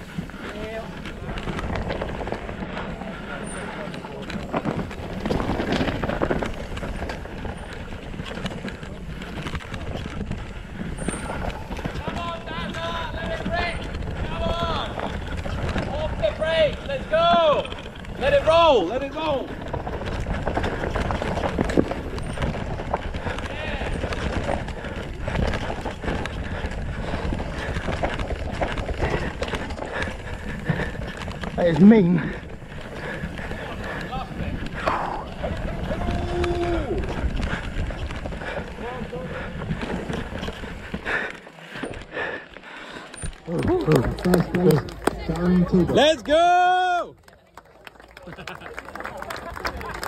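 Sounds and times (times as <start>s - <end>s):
wind buffeting microphone: 0.0s - 41.3s
mountain bike rattle and tyre rumble: 0.0s - 50.0s
spectators' voices: 29.2s - 50.0s.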